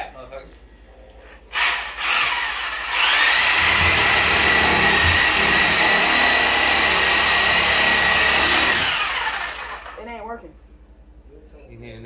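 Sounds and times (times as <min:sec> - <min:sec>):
power saw whining: 0:01.6 - 0:10.0.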